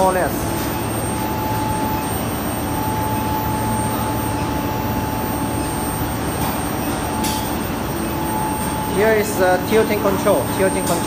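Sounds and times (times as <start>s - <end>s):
furnace rushing hum: 0.0s - 11.0s
thin high whine: 0.0s - 11.0s.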